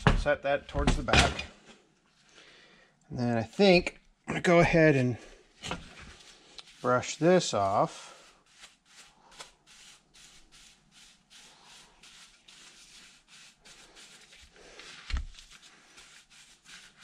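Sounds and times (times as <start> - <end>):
paintbrush scrubbing metal: 5.8 - 17.0.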